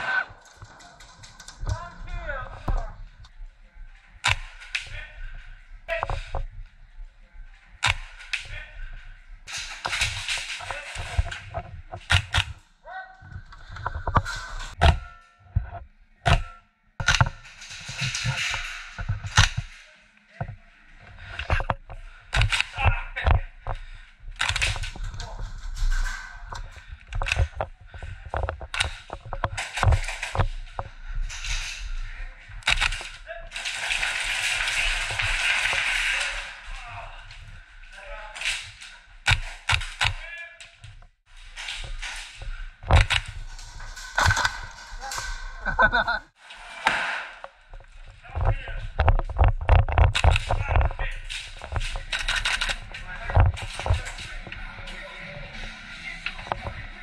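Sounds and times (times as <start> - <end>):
gear clicks and knocks: 20.4 - 46.1, 47.6 - 54.7.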